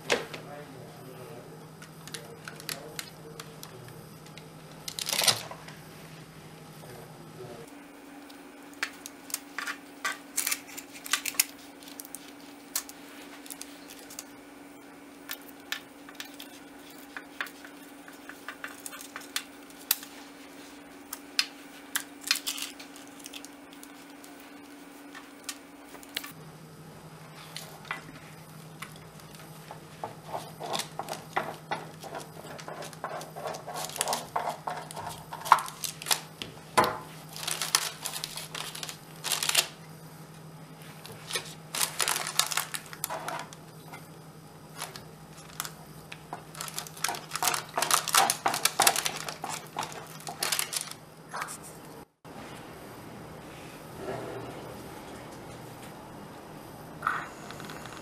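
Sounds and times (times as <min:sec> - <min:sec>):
low steady hum: 0:00.0 - 0:58.0
crackling and rustling parchment: 0:01.8 - 0:05.7, 0:08.7 - 0:26.4, 0:27.3 - 0:39.9, 0:40.7 - 0:44.0, 0:44.6 - 0:51.6
knife scraping waffle crust: 0:29.9 - 0:36.1.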